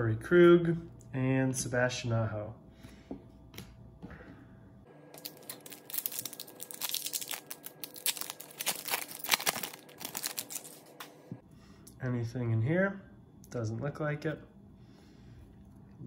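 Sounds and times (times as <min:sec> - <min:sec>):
foil wrapper crinkling and tearing: 0:05.2 - 0:10.9.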